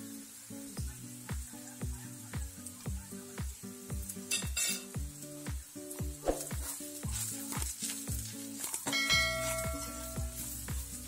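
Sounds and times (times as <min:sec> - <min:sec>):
vegetables sizzling in oil: 0:00.0 - 0:11.0
background music with beat: 0:00.8 - 0:11.0
spatula stirring: 0:06.2 - 0:11.0.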